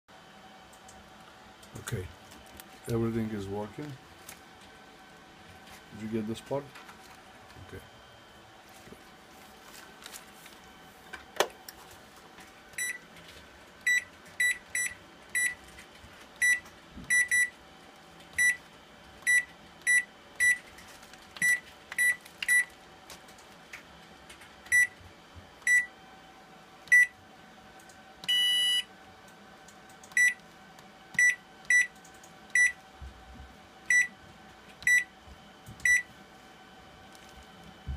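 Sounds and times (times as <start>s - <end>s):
microwave key beeps: 12.8s - 13.0s, 13.9s - 15.6s, 16.4s - 17.6s, 18.4s - 18.6s, 19.3s - 20.6s, 21.4s - 22.7s, 24.7s - 25.0s, 25.6s - 25.9s, 26.9s - 27.1s, 28.2s - 28.9s, 30.1s - 30.4s, 31.2s - 32.8s, 33.9s - 34.1s, 34.8s - 35.1s, 35.8s - 36.1s
long beep: 28.3s - 28.9s.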